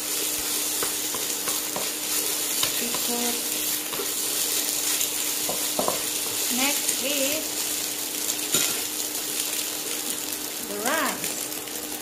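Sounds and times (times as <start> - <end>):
eggs sizzling in hot oil: 0.0 - 12.0
spatula tapping a pan: 0.4 - 3.2, 5.4 - 6.4.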